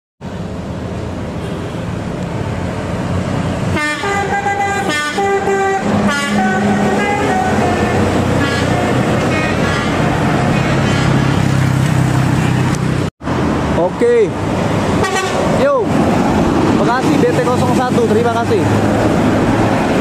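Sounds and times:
diesel bus engine: 0:00.2 - 0:20.0
traffic: 0:00.2 - 0:20.0
bus multi-tone horn tune: 0:03.7 - 0:11.4, 0:15.0 - 0:15.5.

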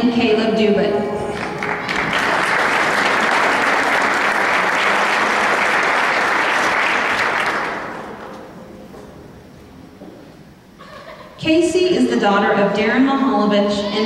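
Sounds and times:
audience applauding: 0:01.4 - 0:08.3.

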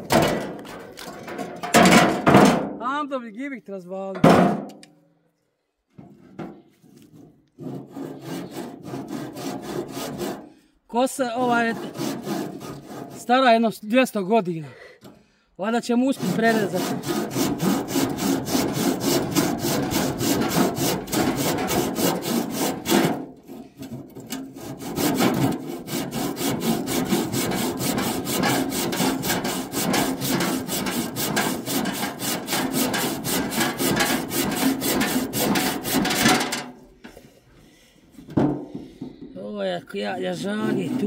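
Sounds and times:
bow saw cutting wood: 0:07.6 - 0:10.5, 0:11.4 - 0:13.4, 0:16.1 - 0:36.5, 0:40.5 - 0:41.0.

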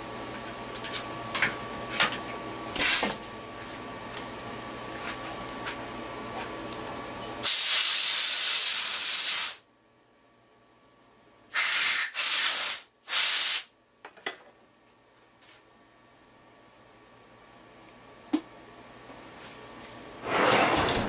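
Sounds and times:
air blow gun hissing: 0:07.4 - 0:09.6, 0:11.6 - 0:13.7.

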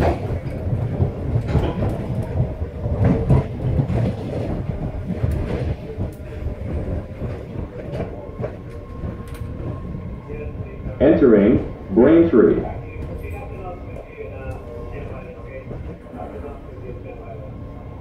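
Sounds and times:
wheels clicking on track: 0:00.0 - 0:10.9
subway car rumble: 0:00.0 - 0:18.0.

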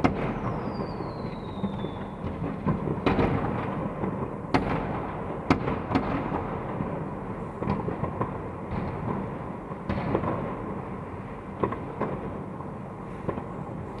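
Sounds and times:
sharp firework bangs: 0:00.0 - 0:10.7
rumble of distant explosions: 0:00.0 - 0:14.0.

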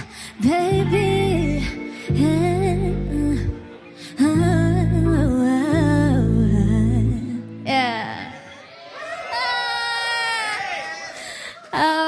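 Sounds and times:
woman singing vocal run: 0:00.0 - 0:08.4, 0:11.8 - 0:12.0.

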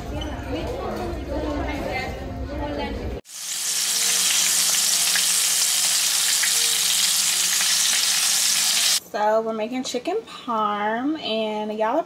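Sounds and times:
chicken sizzling in oil: 0:03.2 - 0:09.0.

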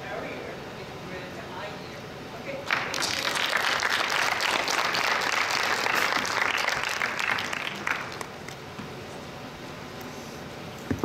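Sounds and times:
audience applauding: 0:02.7 - 0:08.6.

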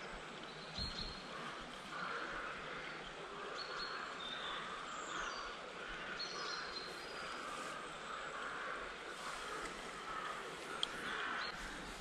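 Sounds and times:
outdoor background hiss: 0:00.0 - 0:12.0
songbirds chirping: 0:00.0 - 0:12.0.

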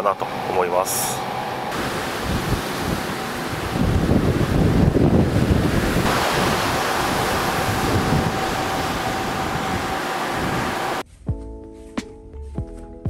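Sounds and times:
water rushing along hull: 0:00.0 - 0:11.0
wind buffeting microphone: 0:01.7 - 0:11.0.

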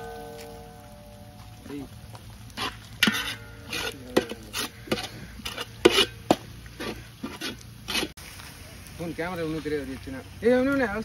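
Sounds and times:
onions frying in oil: 0:00.0 - 0:11.0
metal ladle scraping a pot: 0:02.5 - 0:08.2.

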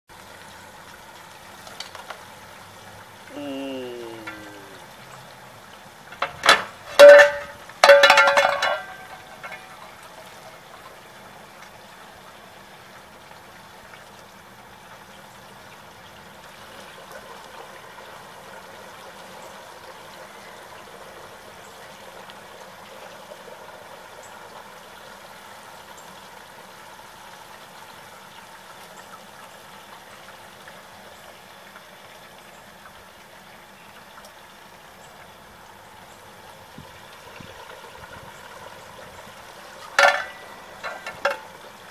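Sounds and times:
metal clanks on pot: 0:06.2 - 0:09.8, 0:39.9 - 0:41.5.

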